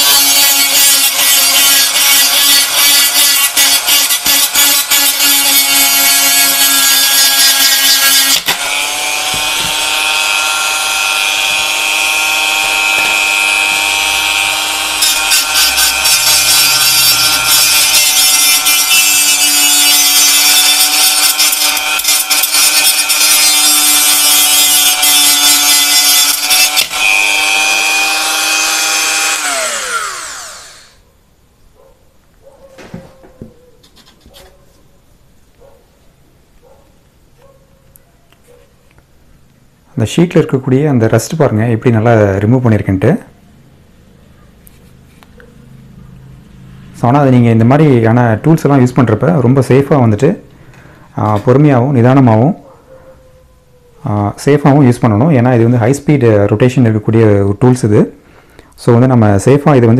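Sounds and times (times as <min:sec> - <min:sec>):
sandpaper rasping on metal: 0:00.0 - 0:08.4
rotary tool motor whine: 0:07.5 - 0:31.0.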